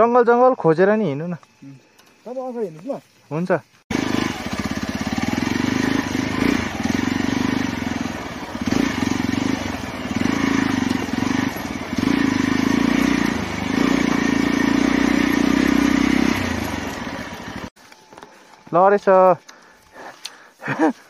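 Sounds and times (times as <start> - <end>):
motorcycle engine revving: 3.9 - 17.8.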